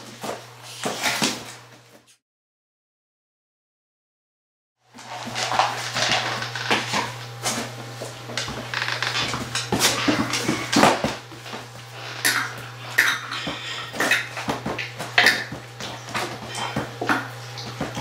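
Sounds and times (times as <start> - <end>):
dog eating kibble: 5.0 - 7.2.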